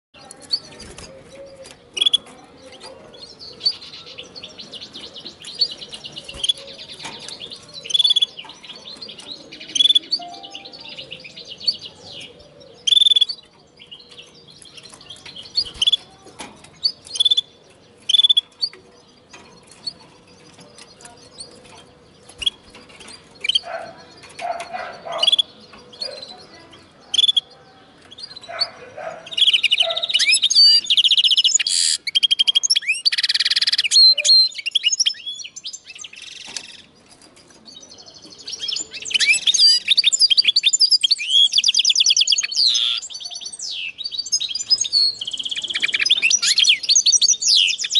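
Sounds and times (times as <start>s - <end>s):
bird chirps: 0.2s - 47.9s
bird twittering song with trills: 0.2s - 47.9s.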